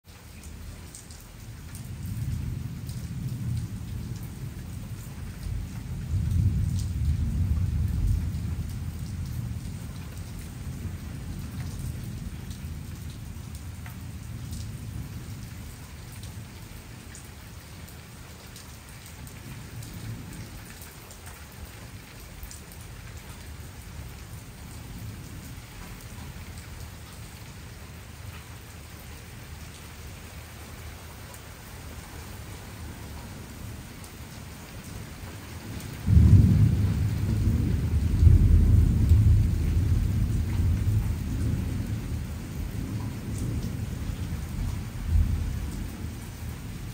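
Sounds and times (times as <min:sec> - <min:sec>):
steady rain: 0:00.0 - 0:46.9
thunder rumbling: 0:01.9 - 0:13.4, 0:36.0 - 0:46.9.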